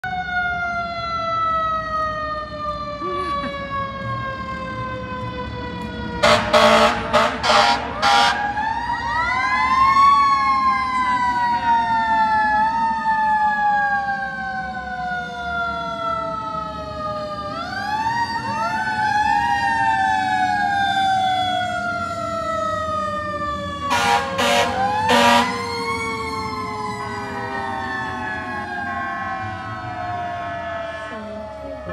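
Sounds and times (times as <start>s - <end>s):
fire truck sirens wailing: 0.0s - 31.9s
loud horn blasts: 6.2s - 8.5s, 23.9s - 25.6s.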